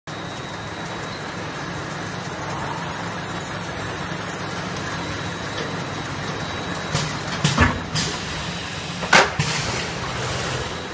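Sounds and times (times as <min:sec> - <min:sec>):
faint high whine: 0:00.1 - 0:06.8
machine hum and whir: 0:00.1 - 0:10.9.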